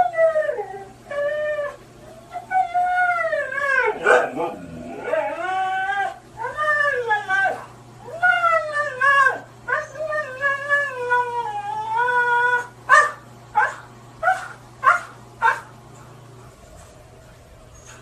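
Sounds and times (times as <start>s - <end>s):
husky howling: 0.0s - 15.6s
dog yelping: 3.8s - 6.2s, 12.6s - 15.7s.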